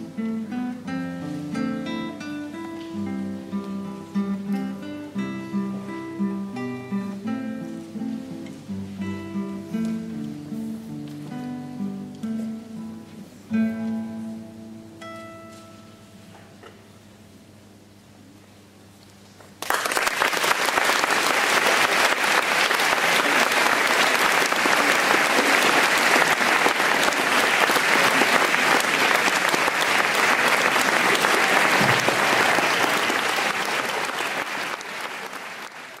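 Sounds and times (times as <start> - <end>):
audience applause: 19.6 - 36.0.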